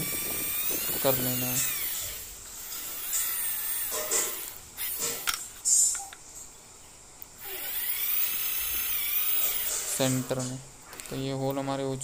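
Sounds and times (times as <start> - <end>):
electric drill boring wood: 0.0 - 5.1, 7.4 - 10.1.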